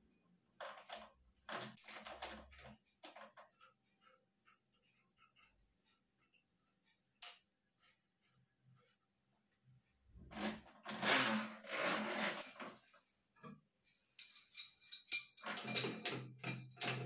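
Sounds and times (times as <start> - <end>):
small metallic clicks and clinks: 7.2 - 7.5, 14.2 - 17.0
rustling and scraping: 10.2 - 15.1.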